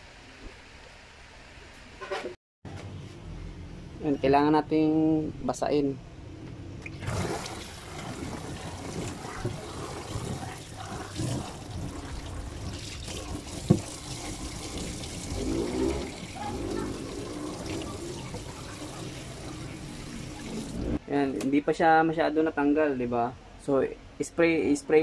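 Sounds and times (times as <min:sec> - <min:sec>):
water running from a tap: 0:07.0 - 0:21.0.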